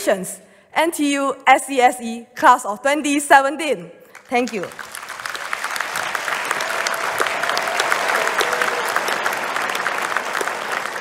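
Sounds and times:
large audience applauding: 0:04.1 - 0:11.0.

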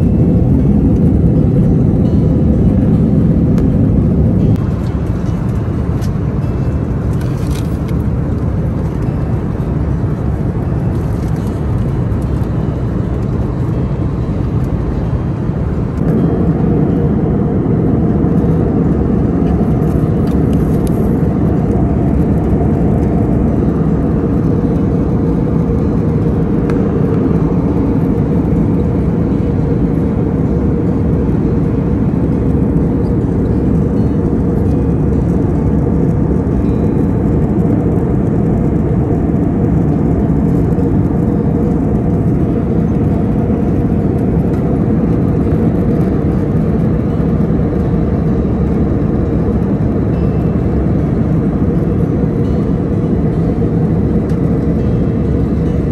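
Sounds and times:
jet airliner cabin noise: 0:00.0 - 0:55.9.

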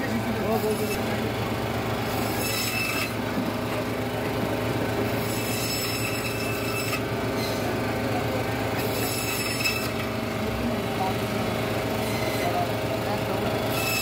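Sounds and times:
noisy background: 0:00.0 - 0:14.0
steady mechanical hum: 0:00.0 - 0:14.0.

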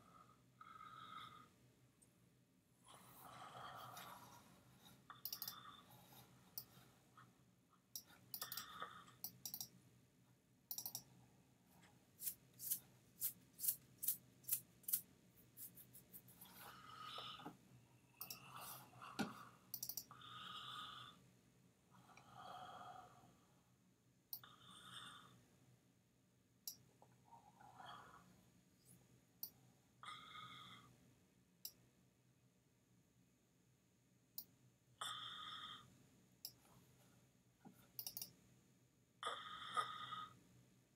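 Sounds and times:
computer mouse clicks: 0:05.1 - 0:05.7, 0:06.5 - 0:06.8, 0:07.9 - 0:09.8, 0:10.7 - 0:11.1, 0:18.2 - 0:18.5, 0:19.2 - 0:20.2, 0:37.9 - 0:38.4.

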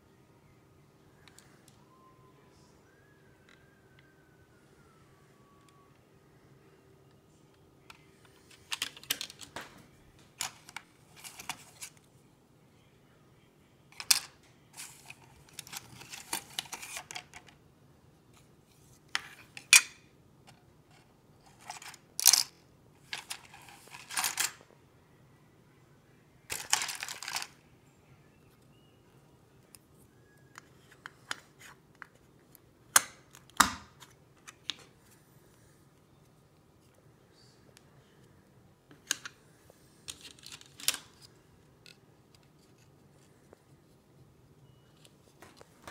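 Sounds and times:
plastic parts clicking and rattling: 0:07.9 - 0:09.7, 0:10.4 - 0:12.0, 0:14.0 - 0:17.6, 0:19.1 - 0:24.6, 0:26.5 - 0:27.6, 0:40.0 - 0:42.9.

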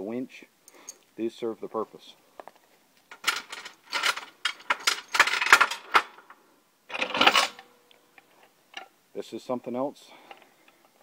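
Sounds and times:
metal chain rattling and clinking: 0:03.1 - 0:06.3, 0:06.9 - 0:07.7.

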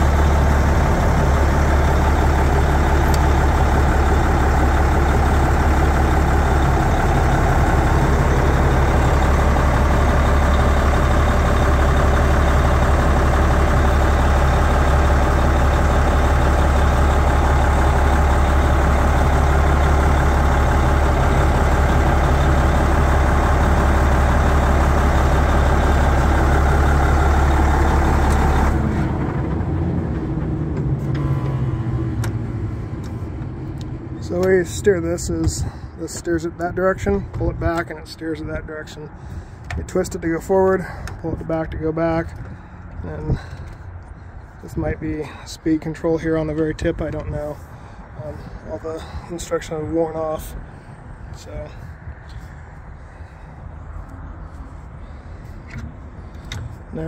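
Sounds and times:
bulldozer diesel engine droning: 0:00.0 - 0:57.0.

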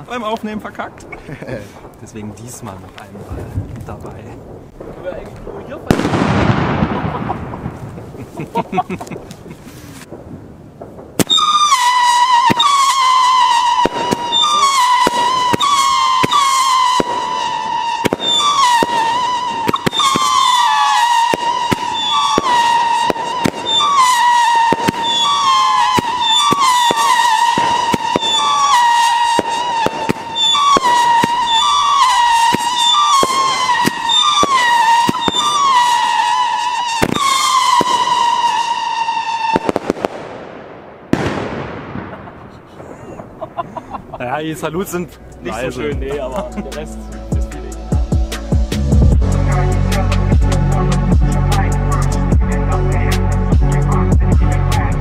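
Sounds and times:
firework salute bangs: 0:01.7 - 0:43.4
howling firework whistles: 0:11.2 - 0:40.4.

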